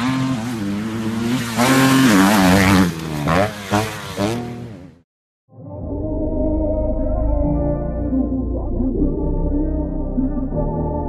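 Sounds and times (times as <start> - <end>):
motorcycle engine revving: 0.0 - 5.0.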